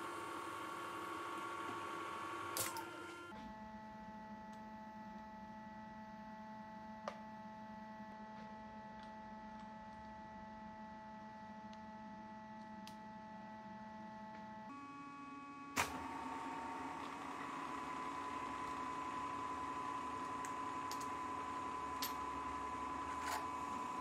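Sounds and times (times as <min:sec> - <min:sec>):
milling machine whining: 0:00.0 - 0:03.3, 0:14.7 - 0:24.0.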